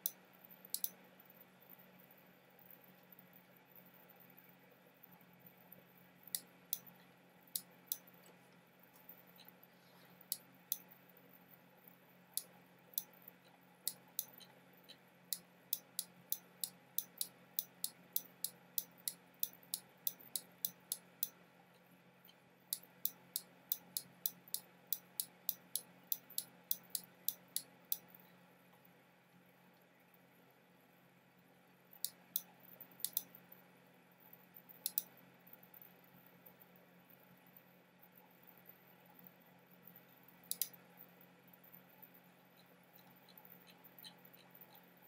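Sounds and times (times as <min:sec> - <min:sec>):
small sharp clicks: 0:00.0 - 0:01.0, 0:06.3 - 0:11.0, 0:12.3 - 0:28.9, 0:32.0 - 0:33.4, 0:34.7 - 0:35.2, 0:40.5 - 0:40.8
faint low hum: 0:00.0 - 0:45.0.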